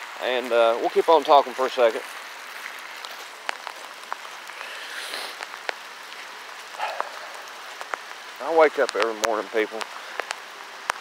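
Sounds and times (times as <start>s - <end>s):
footsteps on dry leaves: 0.0s - 8.1s
soft steady hiss: 0.0s - 11.0s.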